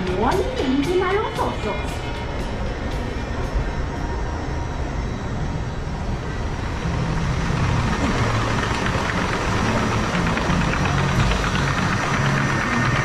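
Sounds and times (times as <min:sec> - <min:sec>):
ride machinery hum: 0:00.0 - 0:13.0.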